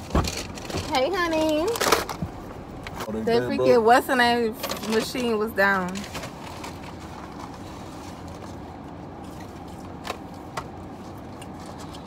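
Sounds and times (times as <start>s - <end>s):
car cabin hum: 0.0s - 5.9s.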